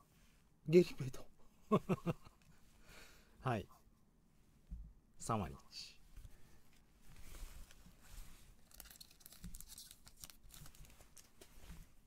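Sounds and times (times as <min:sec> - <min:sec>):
foil wrapper rustling and tearing: 0:08.6 - 0:11.4.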